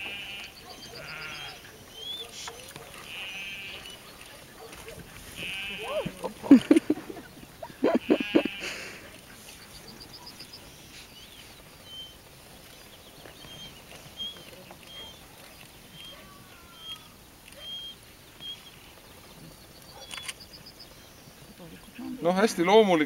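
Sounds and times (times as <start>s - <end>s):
sheep bleating: 0.0s - 1.6s, 3.0s - 4.0s, 5.3s - 7.0s, 7.6s - 9.1s
small bird chirping: 0.1s - 8.6s, 9.3s - 22.2s.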